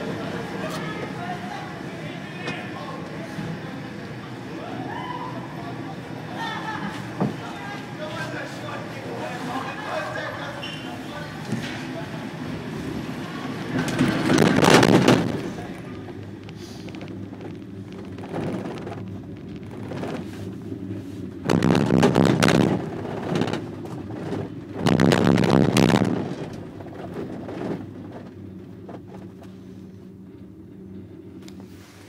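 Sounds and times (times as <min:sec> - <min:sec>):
gondola cabin hum: 0:00.0 - 0:32.0
cabin grip rumbling over rollers: 0:06.3 - 0:31.6.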